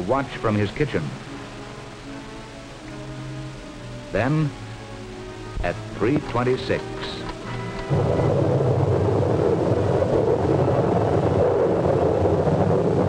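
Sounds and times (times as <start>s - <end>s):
tornado wind roaring: 7.7s - 13.0s.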